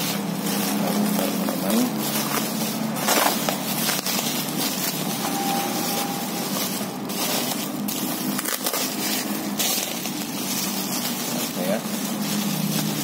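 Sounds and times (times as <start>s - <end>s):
bubble wrap crinkling: 0.0s - 13.0s
low hum: 0.0s - 13.0s.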